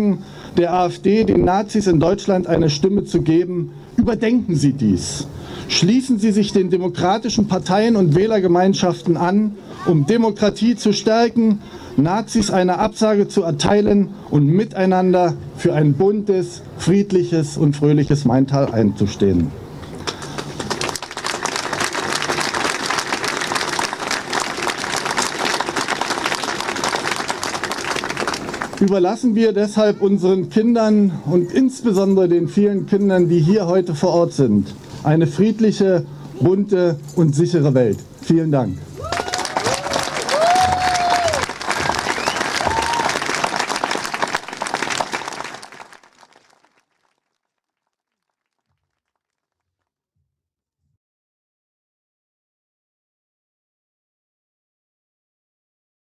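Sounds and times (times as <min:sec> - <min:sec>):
large crowd applauding: 0:20.1 - 0:29.0, 0:39.0 - 0:47.3.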